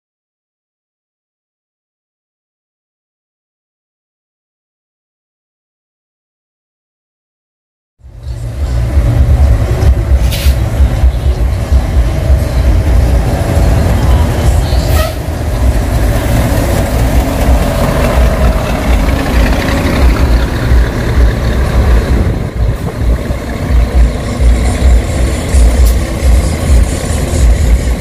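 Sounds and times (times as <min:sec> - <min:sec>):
buses running with low rumble: 0:08.0 - 0:28.0.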